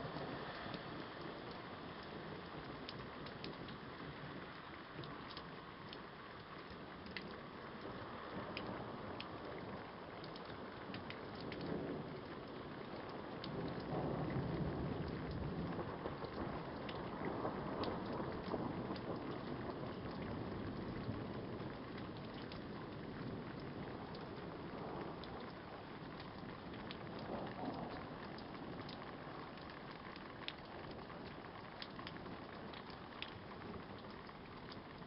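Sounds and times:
sharp ticks of raindrops: 0:00.0 - 0:35.0
steady rain: 0:00.0 - 0:35.0
thunder rumbling: 0:11.2 - 0:35.0.

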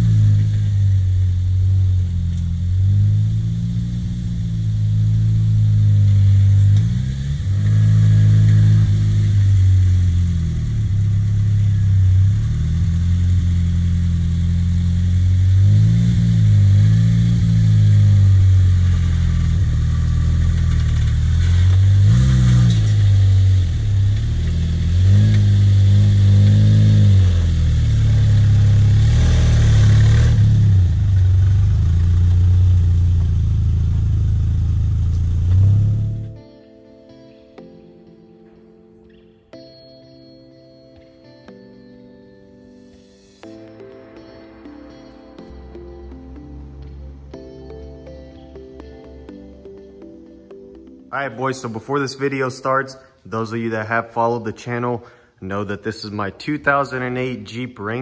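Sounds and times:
engine revving at low speed: 0:00.0 - 0:36.4.

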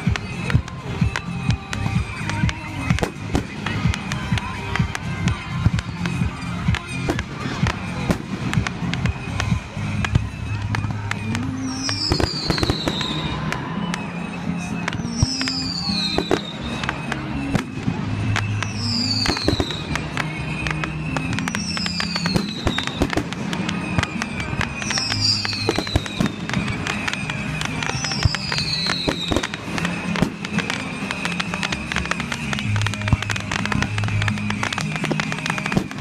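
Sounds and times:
background music: 0:00.0 - 0:36.0
fireworks bursting and crackling: 0:00.0 - 0:36.0
falling whistle-like sweep: 0:11.6 - 0:36.0.

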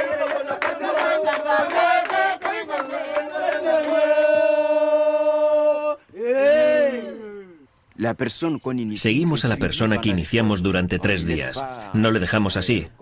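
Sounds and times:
group of voices chanting: 0:00.0 - 0:07.6.

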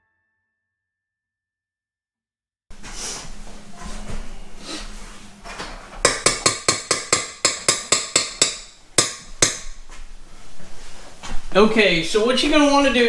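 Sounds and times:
knocks on metal mixing bowl: 0:06.0 - 0:09.7.

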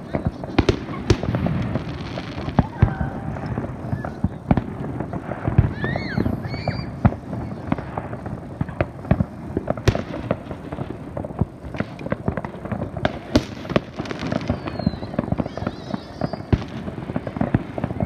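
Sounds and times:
fireworks bangs and crackling pops: 0:00.0 - 0:18.0.

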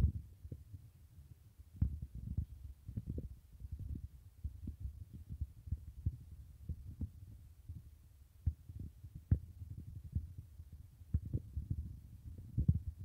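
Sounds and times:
microphone handling thumps: 0:11.1 - 0:13.0.

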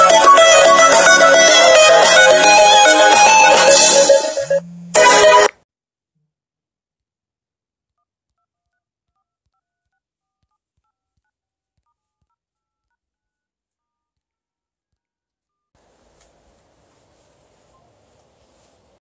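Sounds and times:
low hiss: 0:15.8 - 0:19.0.

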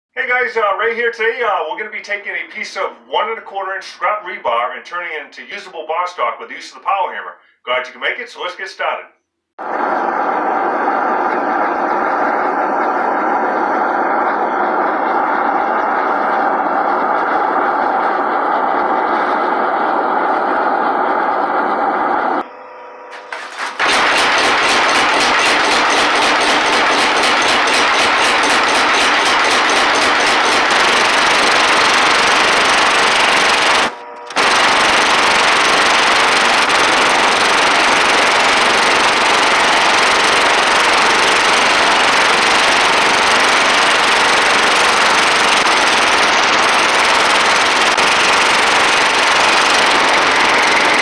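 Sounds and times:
power hammer pounding hot metal: 0:23.2 - 0:51.0.

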